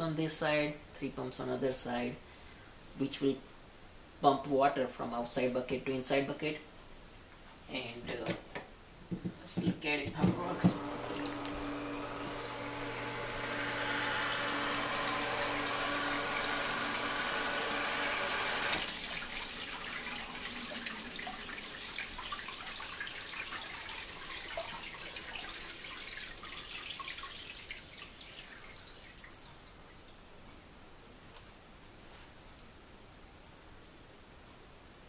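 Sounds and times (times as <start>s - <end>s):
electric water pump humming: 10.1s - 29.4s
water splashing and trickling: 10.4s - 30.2s.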